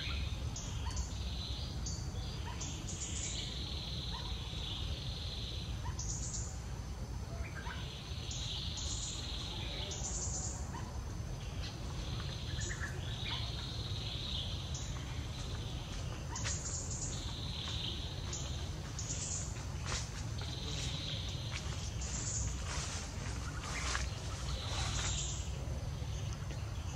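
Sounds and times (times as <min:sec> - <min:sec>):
insect calls: 0:00.0 - 0:26.9
high bird calls: 0:07.3 - 0:26.9.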